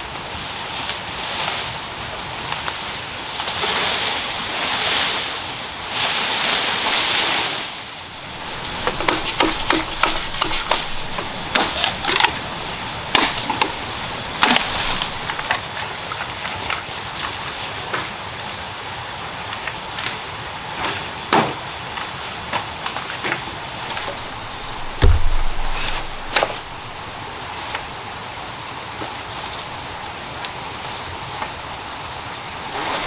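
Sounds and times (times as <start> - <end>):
leaves and undergrowth rustling: 0.0 - 33.0
bamboo stalks clattering: 8.1 - 18.2, 20.0 - 28.0.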